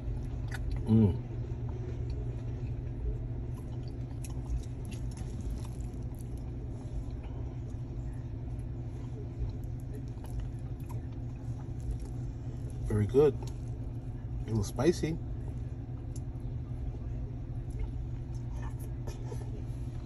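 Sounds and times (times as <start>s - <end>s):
chewing: 0.1s - 1.0s, 1.7s - 12.8s.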